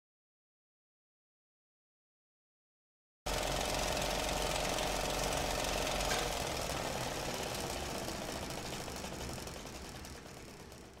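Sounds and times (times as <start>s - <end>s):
rough rushing machine noise: 3.3s - 11.0s.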